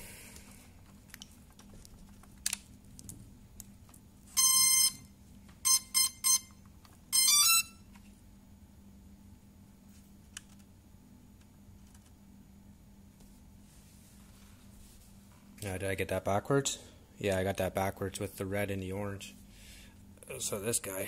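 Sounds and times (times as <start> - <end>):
drone start-up beeps: 4.4 - 5.0, 5.6 - 6.5, 7.1 - 7.8.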